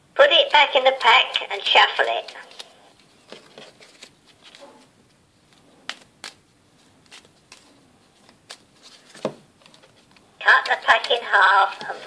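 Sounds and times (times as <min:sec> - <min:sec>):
playing cards shuffled by hand: 0:02.2 - 0:10.3.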